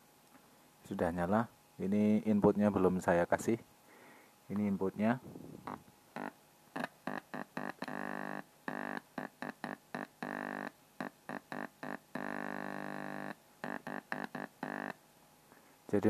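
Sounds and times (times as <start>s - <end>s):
speaker buzzing: 4.5s - 15.0s.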